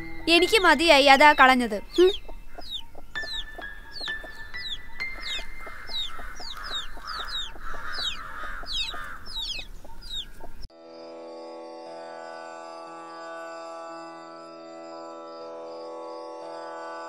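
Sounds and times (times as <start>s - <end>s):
instrumental music drone: 0.0s - 17.0s
chickens clucking: 0.6s - 10.7s
short falling peeping chirps: 1.3s - 10.6s.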